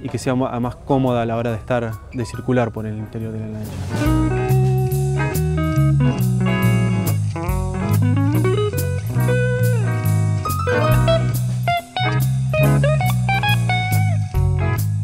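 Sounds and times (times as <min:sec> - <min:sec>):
blues guitar with bass and drums: 0:03.4 - 0:15.0.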